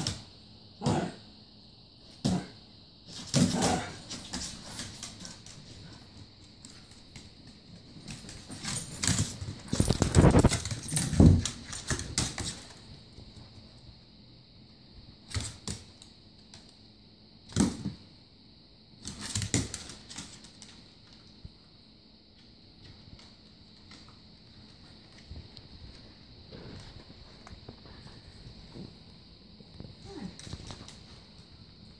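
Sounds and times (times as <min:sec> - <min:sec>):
dogs scuffling: 0:03.1 - 0:13.7
dog claws clicking on hardwood floor: 0:06.6 - 0:12.8.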